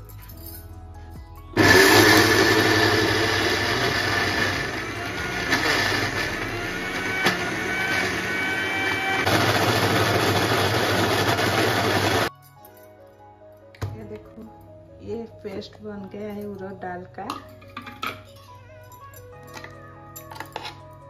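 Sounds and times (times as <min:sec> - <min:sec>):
mixer grinder motor grinding: 0:01.6 - 0:12.3.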